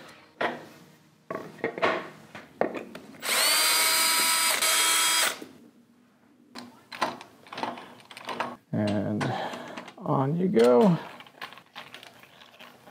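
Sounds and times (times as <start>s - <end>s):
cordless drill whining: 3.2s - 5.4s.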